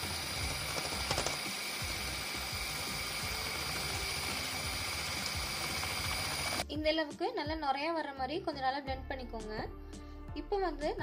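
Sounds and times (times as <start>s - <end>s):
electric whisk beating eggs: 0.0s - 6.6s.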